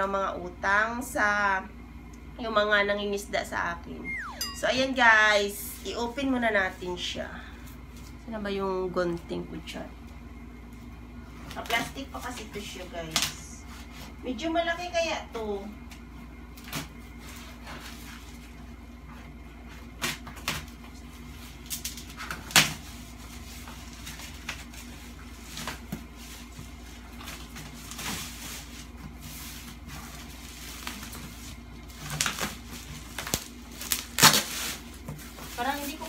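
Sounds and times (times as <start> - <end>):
faint steady hum: 0.0 - 36.0
plastic wrapping crinkling: 26.4 - 36.0.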